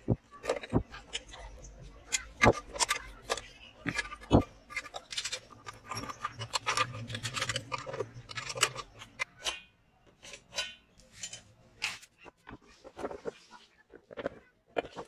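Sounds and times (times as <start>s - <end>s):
wrench and bolts clicking: 0.4s - 12.1s.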